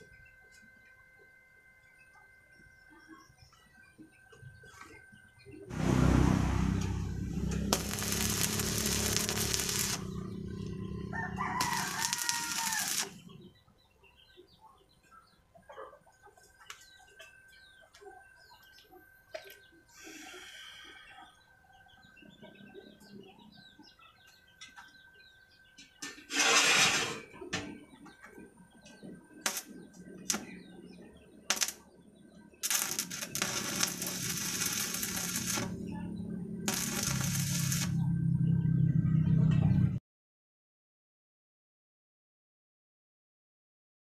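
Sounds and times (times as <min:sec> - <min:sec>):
faint bird chirps: 0:00.0 - 0:05.7
welding arc crackling hiss: 0:07.5 - 0:10.2, 0:11.6 - 0:13.2, 0:29.4 - 0:30.6, 0:31.5 - 0:31.8, 0:32.6 - 0:35.8, 0:36.7 - 0:38.0.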